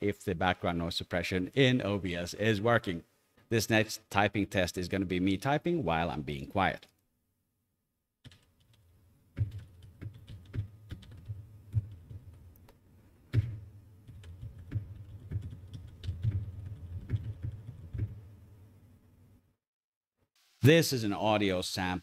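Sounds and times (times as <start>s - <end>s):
mechanical keyboard typing: 8.2s - 8.8s, 9.4s - 12.4s, 14.1s - 18.2s.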